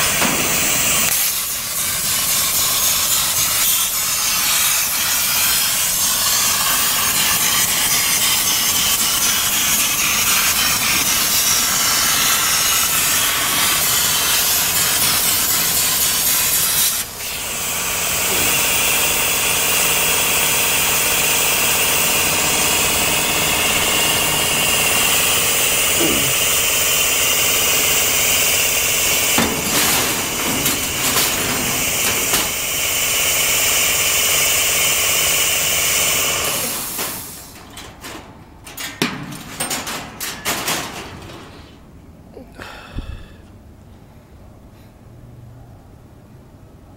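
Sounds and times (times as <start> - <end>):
plasma torch hissing: 0.0 - 37.7
high whine: 20.0 - 34.8.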